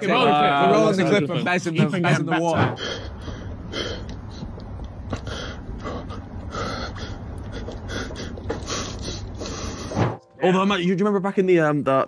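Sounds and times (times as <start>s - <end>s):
steady low rumble: 2.2s - 10.0s
man gasping and panting: 2.6s - 4.5s, 5.1s - 10.0s.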